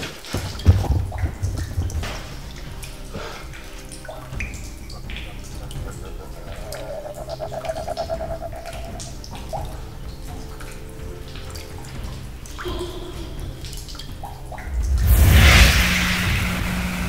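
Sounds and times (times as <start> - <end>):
drips and clicks: 0.0 - 15.1
low drone: 2.6 - 11.2, 12.7 - 17.0
jump-scare hit: 14.7 - 17.0.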